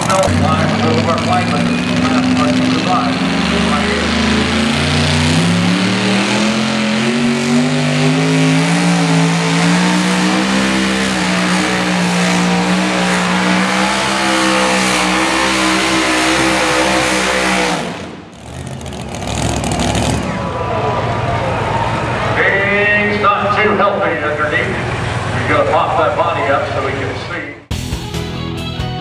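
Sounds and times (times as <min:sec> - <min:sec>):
truck engine at full throttle: 0:00.0 - 0:27.5.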